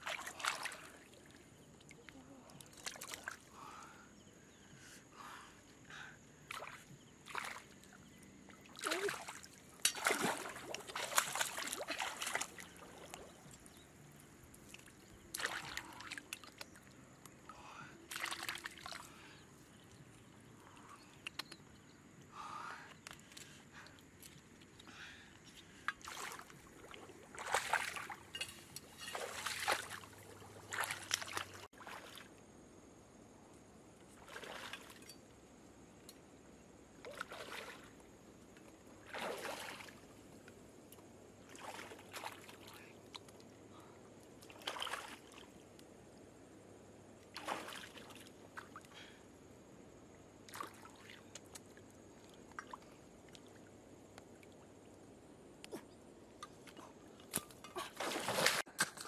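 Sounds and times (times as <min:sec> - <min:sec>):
water sloshing around legs: 0:00.0 - 0:03.5, 0:06.5 - 0:17.2, 0:18.1 - 0:19.8, 0:25.9 - 0:32.4, 0:34.2 - 0:35.2, 0:37.0 - 0:38.1, 0:39.0 - 0:40.3, 0:41.4 - 0:43.4, 0:44.4 - 0:45.6, 0:47.3 - 0:48.9, 0:56.6 - 0:58.7.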